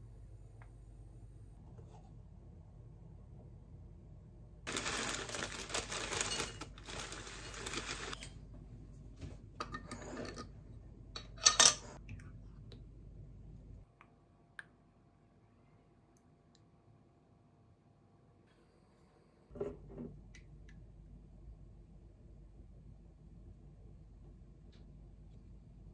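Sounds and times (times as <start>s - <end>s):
plastic bag crinkle: 4.7s - 8.2s.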